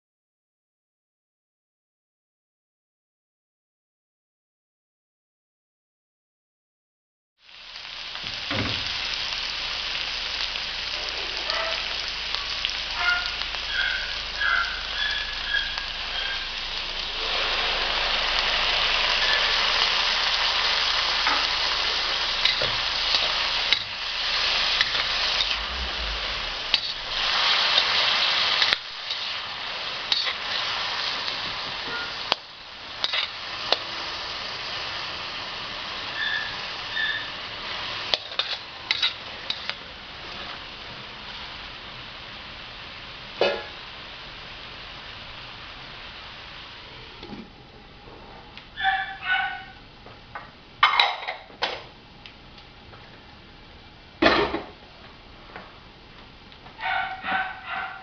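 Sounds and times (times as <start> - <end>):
food sizzling in a wok: 7.4 - 47.7, 48.7 - 58.0
spatula scraping a wok: 21.2 - 32.4, 33.0 - 33.4, 38.1 - 39.8.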